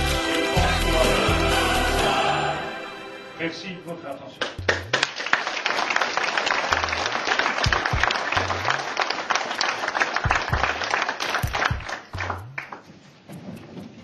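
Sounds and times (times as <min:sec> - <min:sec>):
background music with bass line: 0:00.0 - 0:03.4, 0:04.4 - 0:05.1, 0:07.7 - 0:08.9, 0:10.3 - 0:12.7
audience applauding: 0:04.4 - 0:12.8.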